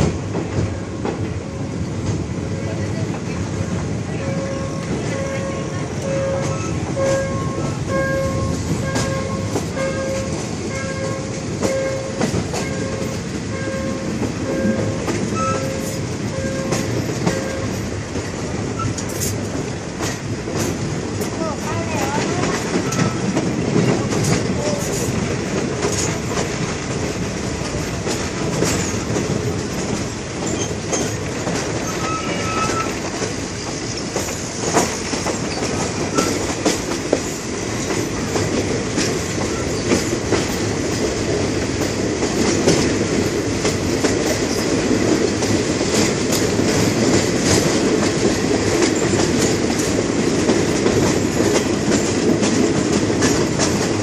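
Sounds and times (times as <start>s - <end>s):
train wheels rumbling on rails: 0.0s - 54.0s
wheel squeals: 30.4s - 31.2s, 31.8s - 33.0s.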